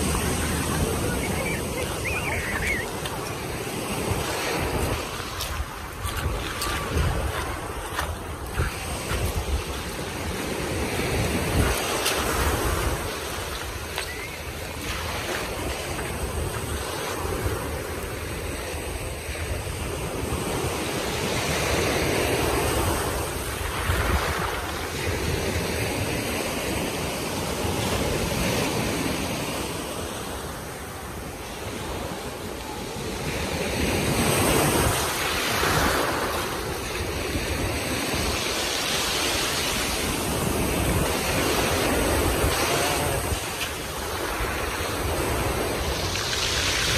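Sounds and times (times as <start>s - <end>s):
waves breaking on shingle: 0.0s - 17.4s
wind buffeting microphone: 0.0s - 26.8s.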